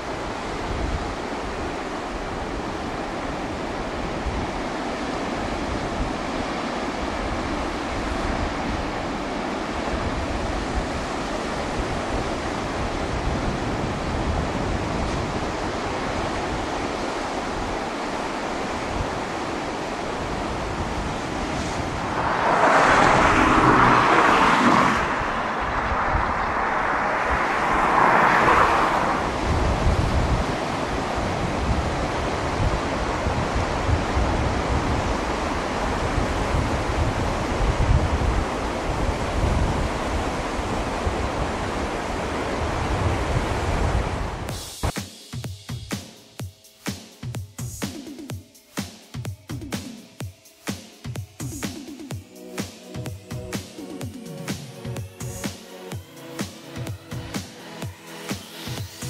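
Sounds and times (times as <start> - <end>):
surf breaking on rocky shore: 0.0 - 44.5.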